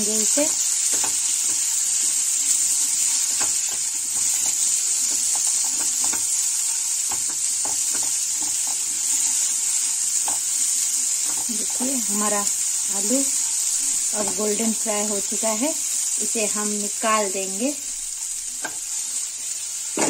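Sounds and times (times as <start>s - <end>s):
potatoes sizzling in oil: 0.0s - 20.0s
spatula scraping a pan: 2.9s - 11.5s.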